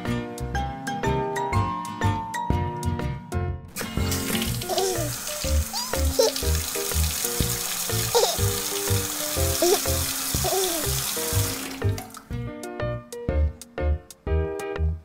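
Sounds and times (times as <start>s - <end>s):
cheerful music with steady beat: 0.0s - 15.0s
shower running: 3.8s - 12.4s.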